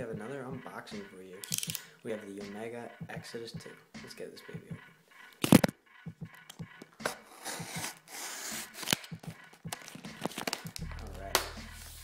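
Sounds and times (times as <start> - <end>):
plastic packaging crinkling: 9.7 - 10.7.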